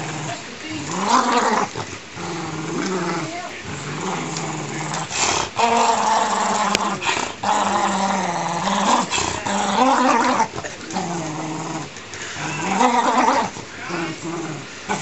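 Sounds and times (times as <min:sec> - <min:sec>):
dog growling: 0:00.0 - 0:15.0.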